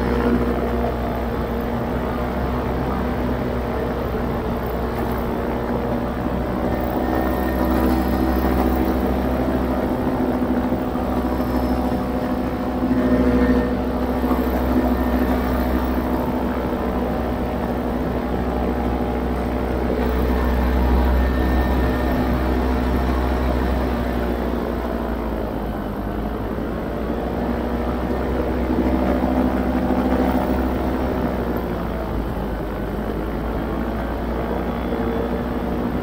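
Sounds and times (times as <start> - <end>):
paramotor engine drone: 0.0 - 36.0.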